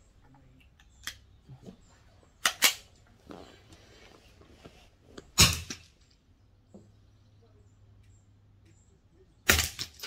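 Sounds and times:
rifle shots: 9.5s - 10.0s.

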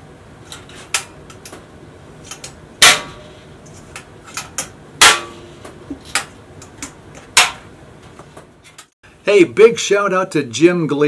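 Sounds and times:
metal lid clamps snapping: 2.2s - 3.2s, 3.9s - 5.4s, 6.0s - 7.7s.

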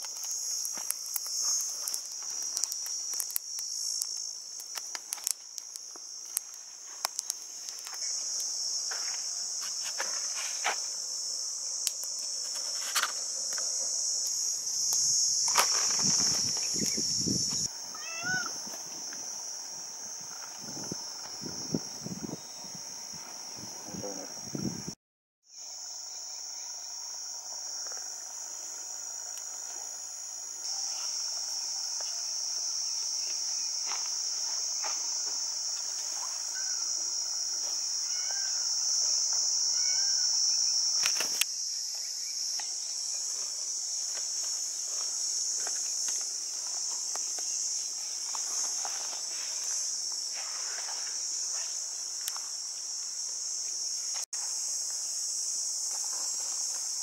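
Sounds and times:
faint ticks: 0.0s - 8.5s
insects shrilling: 0.0s - 57.0s.

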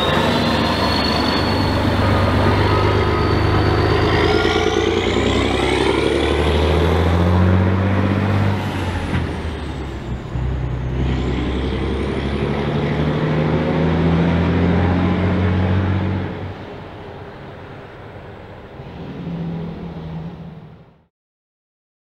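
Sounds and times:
faint high whistle: 0.0s - 4.7s
diesel truck pulling away: 0.0s - 21.0s.

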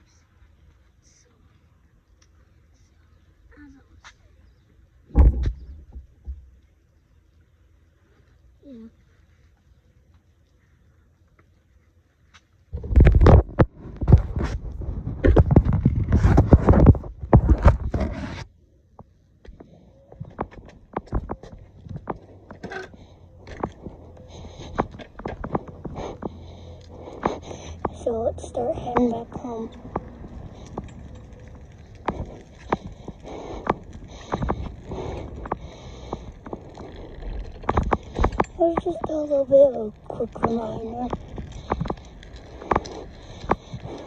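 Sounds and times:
bicycle rolling on concrete: 0.0s - 3.6s, 4.2s - 44.0s
bicycle knocks and rattles: 5.1s - 6.5s, 12.8s - 18.4s, 19.0s - 44.0s
wind rumble on microphone: 12.7s - 18.4s, 28.9s - 39.2s
scratchy rubbing on microphone: 12.7s - 18.5s.

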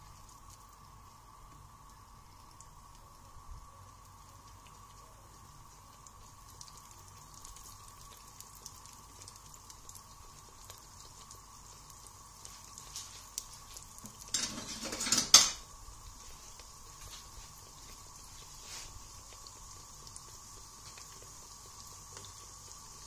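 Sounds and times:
dough frying in hot oil: 0.0s - 23.0s
oil crackling: 0.0s - 23.0s
sizzling and clatter burst: 8.4s - 23.0s.

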